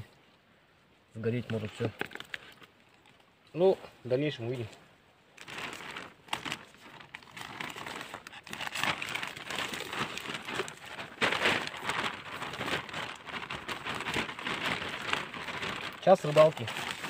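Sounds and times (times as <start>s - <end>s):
plastic bag crinkling: 1.4s - 3.2s, 5.4s - 17.0s.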